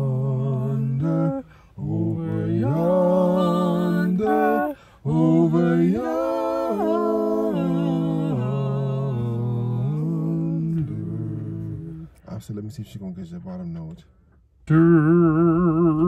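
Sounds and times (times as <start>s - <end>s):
man and woman singing: 0.0s - 12.2s.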